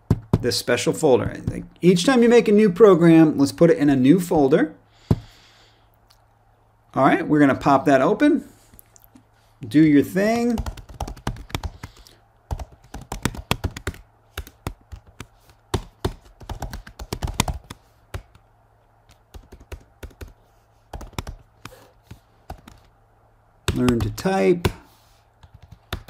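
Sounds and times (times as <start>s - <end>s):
typing on computer keyboard: 10.5s - 18.4s, 19.3s - 21.8s, 22.5s - 22.9s, 25.4s - 26.0s.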